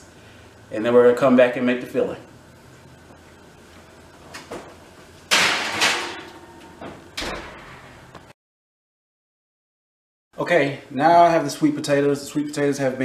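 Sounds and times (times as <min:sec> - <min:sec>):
oven door shutting with a thump: 0:05.3 - 0:07.8.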